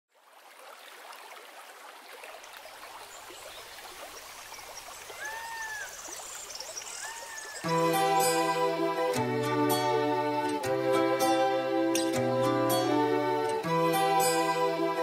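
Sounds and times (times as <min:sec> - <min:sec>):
stream water trickling: 0:00.1 - 0:15.0
bird call: 0:05.1 - 0:07.8.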